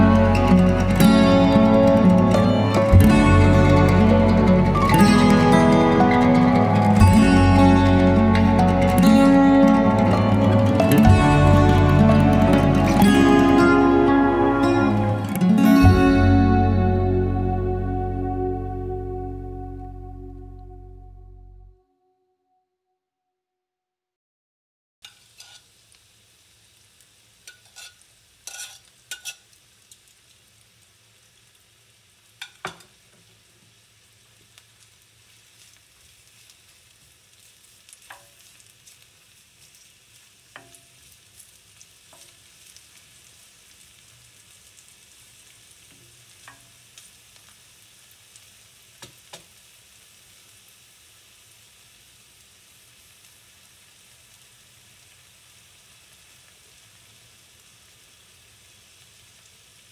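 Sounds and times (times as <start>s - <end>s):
onions sizzling in oil: 0.0s - 16.2s, 25.0s - 59.9s
wooden spoon scraping a pan: 25.1s - 25.7s, 27.6s - 29.4s.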